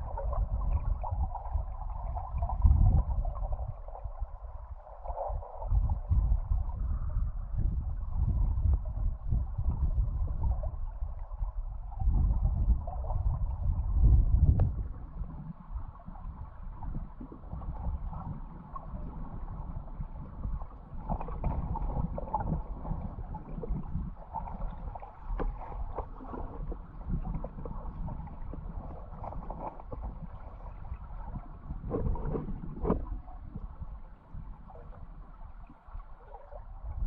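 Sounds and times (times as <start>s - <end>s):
underwater current rumbling: 0.0s - 37.0s
small underwater clicks: 20.8s - 37.0s.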